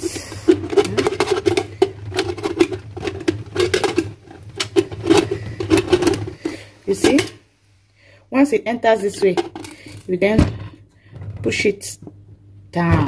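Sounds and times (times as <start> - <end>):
metal lid clicking and scraping: 0.0 - 7.4.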